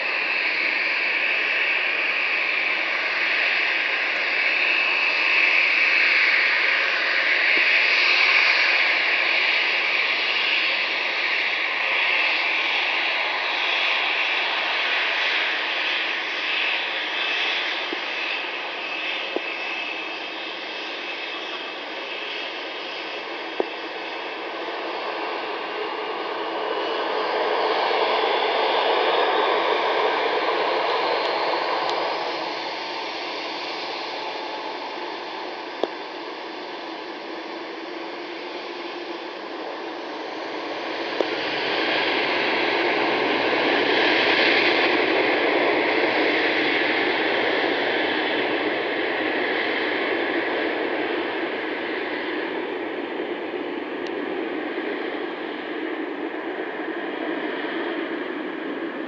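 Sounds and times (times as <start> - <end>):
jet engines roaring: 0.0 - 59.0
faint rising whine: 15.4 - 42.6.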